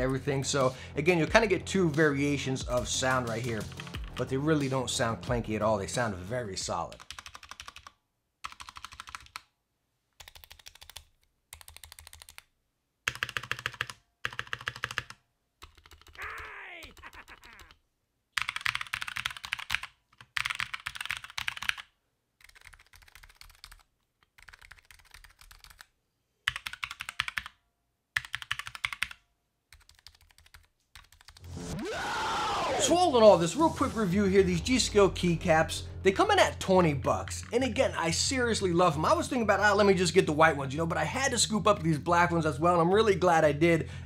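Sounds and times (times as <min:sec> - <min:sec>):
typing on mechanical keyboard: 0:06.9 - 0:09.5, 0:10.2 - 0:17.8, 0:18.4 - 0:27.6, 0:28.2 - 0:31.4.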